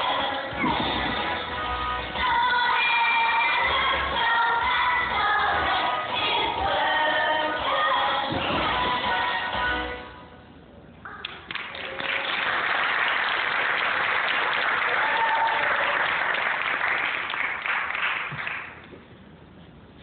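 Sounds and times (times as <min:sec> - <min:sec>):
audience applauding: 0:11.4 - 0:18.8.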